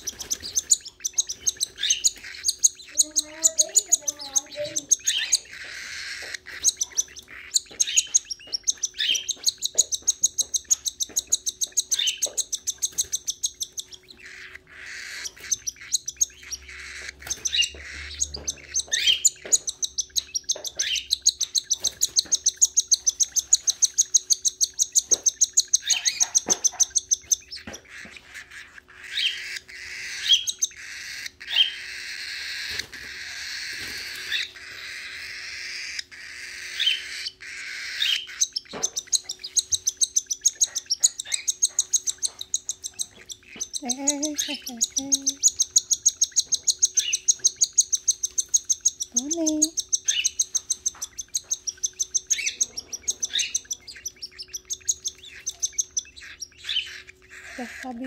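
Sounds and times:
cockatiel begging chirps: 0:00.0 - 0:58.0.

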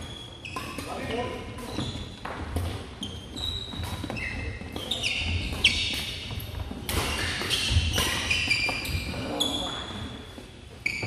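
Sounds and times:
sneakers squeaking on gym floor: 0:00.0 - 0:11.0
racket striking shuttlecock: 0:03.7 - 0:08.8.

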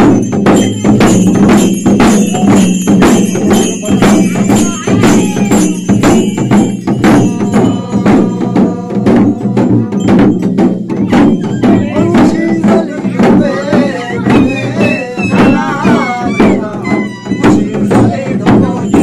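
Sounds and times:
metallic jingling: 0:00.0 - 0:14.3
fast drumming: 0:00.0 - 0:19.0.

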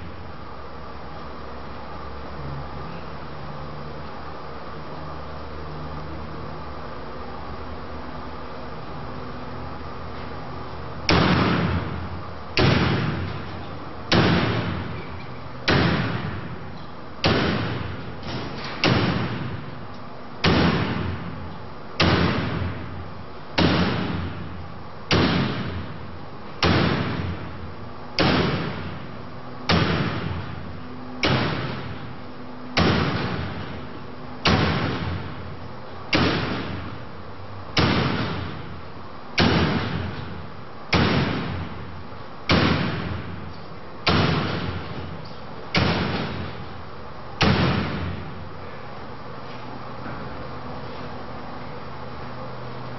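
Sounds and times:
axe striking metal wire: 0:11.1 - 0:12.0, 0:12.6 - 0:16.6, 0:17.2 - 0:19.7, 0:20.4 - 0:21.3, 0:22.0 - 0:22.9, 0:23.6 - 0:24.5, 0:25.1 - 0:25.9, 0:26.6 - 0:27.5, 0:28.2 - 0:29.1, 0:29.7 - 0:30.6, 0:31.2 - 0:32.2, 0:32.8 - 0:35.4, 0:36.1 - 0:37.0, 0:37.8 - 0:38.7, 0:39.4 - 0:41.8, 0:42.5 - 0:43.4, 0:44.0 - 0:46.7, 0:47.4 - 0:48.3.

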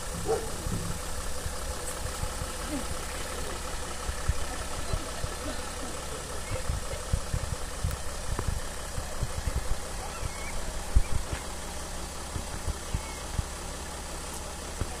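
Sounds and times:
low thumps and knocks: 0:00.0 - 0:02.4
engine idling: 0:00.0 - 0:15.0.

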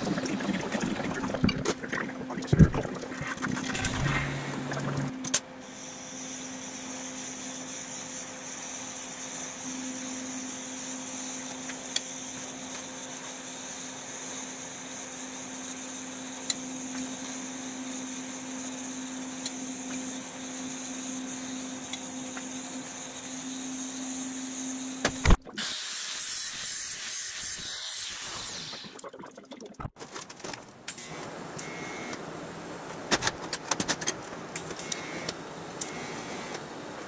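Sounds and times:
torch flame hissing: 0:25.6 - 0:29.0.

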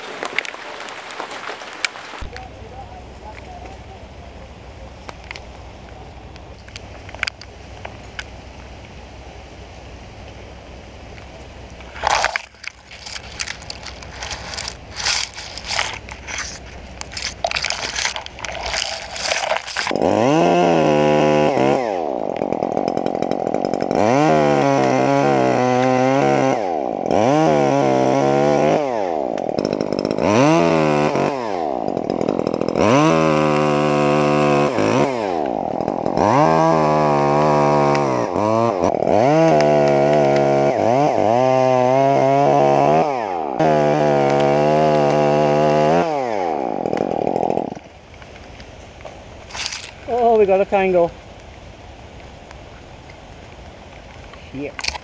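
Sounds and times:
crackling clicks: 0:05.0 - 0:09.0, 0:11.1 - 0:20.1, 0:22.2 - 0:24.0, 0:38.8 - 0:40.5, 0:46.8 - 0:50.1, 0:51.3 - 0:55.0
chainsaw revving and cutting: 0:11.9 - 0:48.0, 0:49.4 - 0:51.0.

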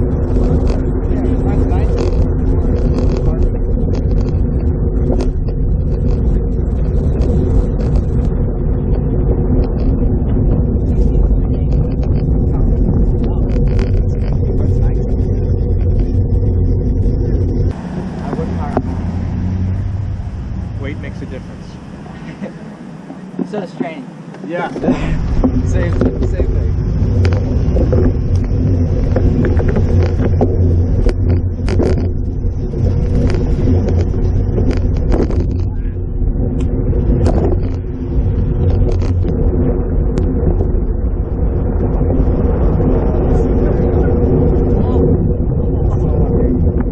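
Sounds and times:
ticks and clicks: 0:00.0 - 0:18.9, 0:23.4 - 0:36.0, 0:36.6 - 0:40.8
wind rushing over microphone: 0:00.0 - 0:46.9.

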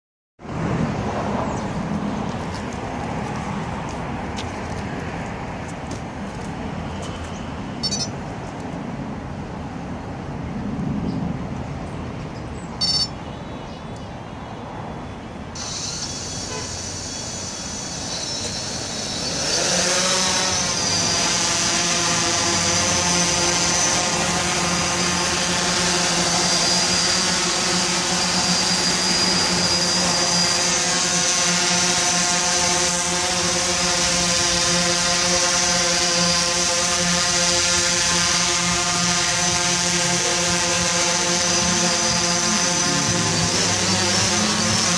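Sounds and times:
drone motors and propellers humming: 0:00.4 - 0:13.3, 0:14.8 - 0:44.9
street traffic: 0:00.4 - 0:44.9
short high beeps: 0:07.8 - 0:08.1, 0:12.8 - 0:13.2.

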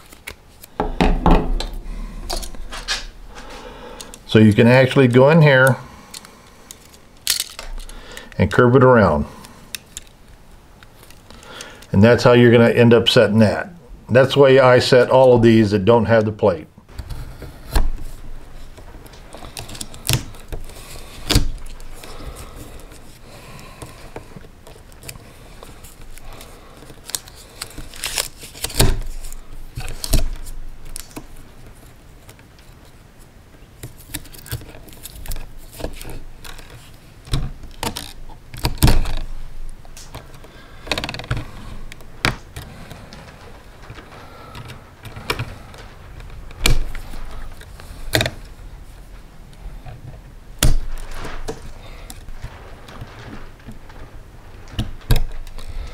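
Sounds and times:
pliers clicking and rattling: 0:06.1 - 0:08.0.

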